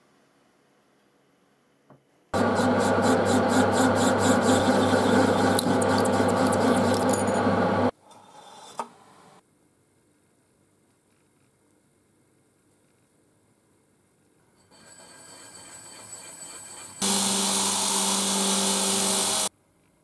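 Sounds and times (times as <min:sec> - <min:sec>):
metal lathe cutting metal: 0:02.4 - 0:07.9, 0:14.7 - 0:19.5.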